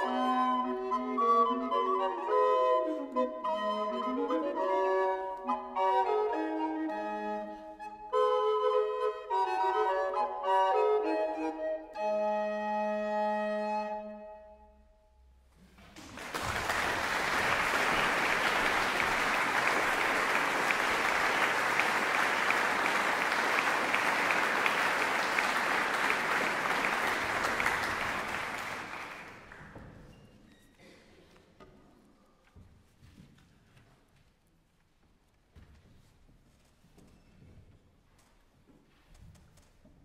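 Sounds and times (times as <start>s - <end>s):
recorder playing: 0.0s - 14.9s
audience applauding: 15.8s - 30.0s.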